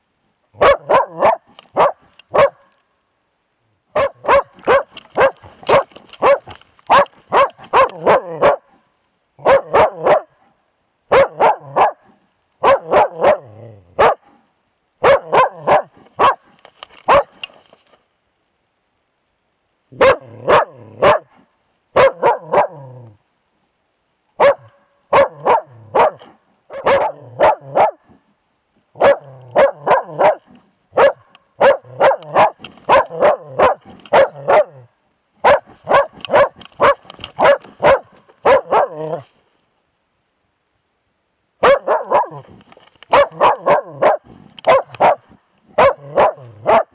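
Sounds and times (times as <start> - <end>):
dog barking close: 0.6 - 2.7, 3.9 - 8.8, 9.4 - 10.4, 11.1 - 14.4, 15.0 - 16.5, 17.1 - 17.4, 20.0 - 23.0, 24.4 - 28.2, 29.0 - 39.3, 41.6 - 42.5, 43.1 - 46.9.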